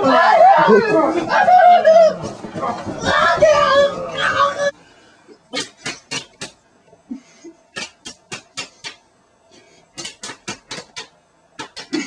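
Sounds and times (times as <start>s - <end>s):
sharp hand slaps: 10.0s - 11.9s.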